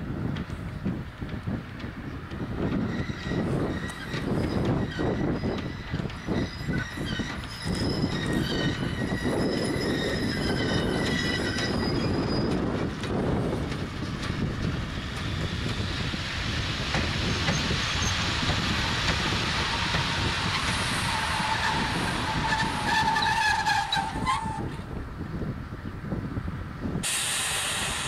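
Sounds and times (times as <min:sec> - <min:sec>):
train wheels squealing: 0:02.6 - 0:13.3, 0:14.8 - 0:24.8.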